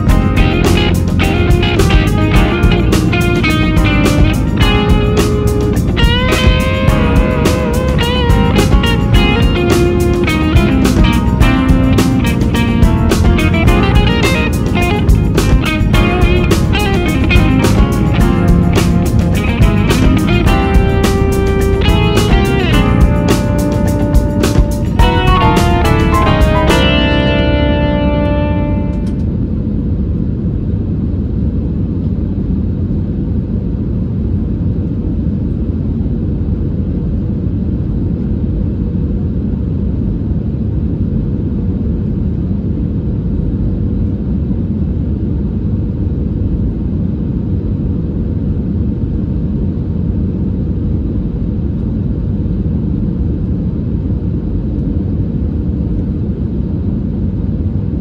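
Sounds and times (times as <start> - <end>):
jet engine cabin rumble: 27.4 - 58.0.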